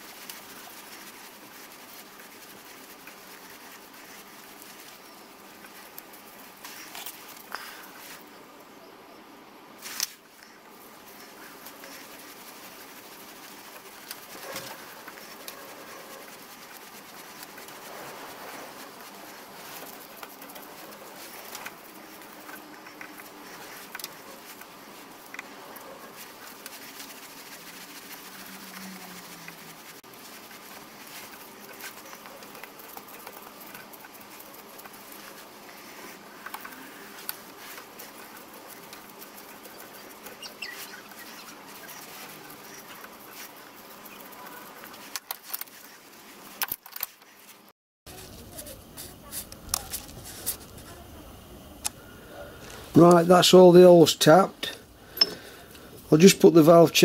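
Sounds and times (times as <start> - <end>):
steady hiss: 0.0 - 57.0
tools being handled: 30.3 - 47.3, 55.2 - 55.5.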